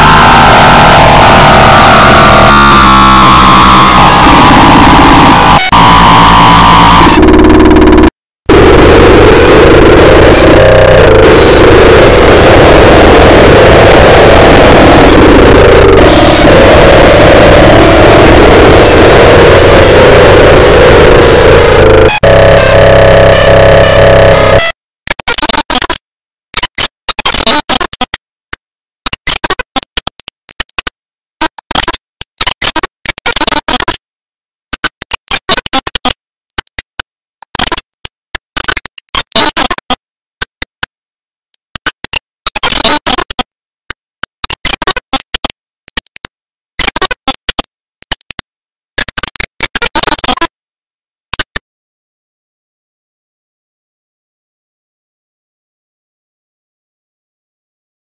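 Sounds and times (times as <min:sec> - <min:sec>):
harsh noisy music stuttering: 0:00.0 - 0:24.7.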